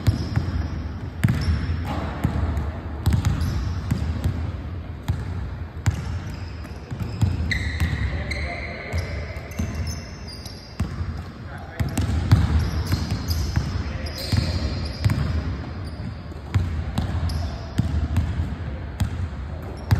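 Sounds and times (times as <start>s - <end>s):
basketball bouncing on wooden floor: 0.0s - 8.0s, 11.8s - 13.7s
sneakers squeaking: 0.0s - 19.9s.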